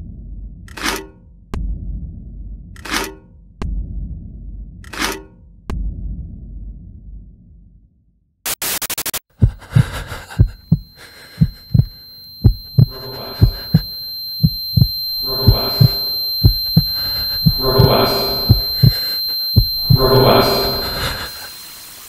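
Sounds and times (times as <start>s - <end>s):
heartbeat thumps: 1.6s - 2.3s, 3.6s - 4.2s, 5.7s - 6.4s, 9.3s - 21.3s
crackling static: 8.5s - 22.0s
high steady ringing tone: 9.4s - 22.0s.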